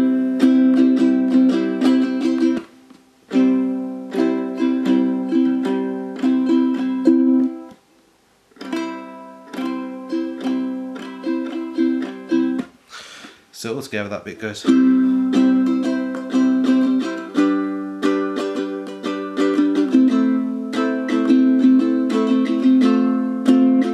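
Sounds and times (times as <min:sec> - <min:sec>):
ukulele picked and strummed: 0:00.0 - 0:07.8, 0:08.5 - 0:12.8, 0:14.2 - 0:23.9.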